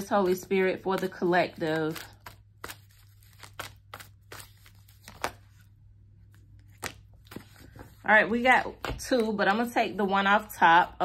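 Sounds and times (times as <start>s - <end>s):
cards being shuffled: 0.0s - 5.7s, 6.3s - 8.0s.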